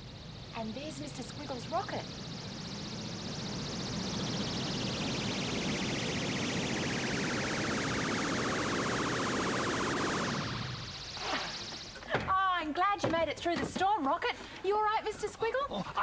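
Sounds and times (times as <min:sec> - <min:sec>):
descending pulsing whistle tone: 0:00.0 - 0:12.7.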